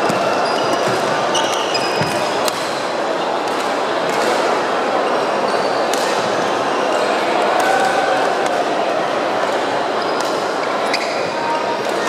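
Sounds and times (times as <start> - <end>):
sneakers squeaking on wooden court: 0.0 - 2.4
echoing hall din: 0.0 - 12.0.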